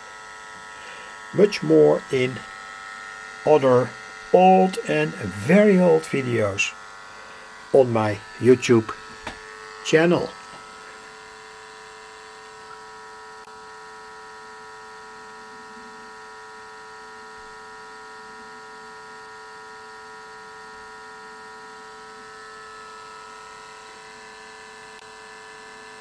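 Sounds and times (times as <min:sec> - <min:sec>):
steady test tone: 0:00.8 - 0:02.4, 0:03.4 - 0:10.5.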